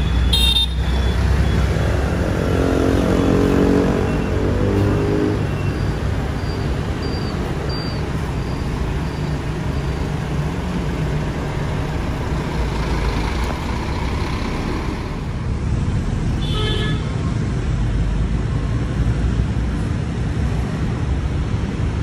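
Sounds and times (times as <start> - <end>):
diesel coach engine running: 0.0 - 16.3
traffic noise: 0.0 - 22.0.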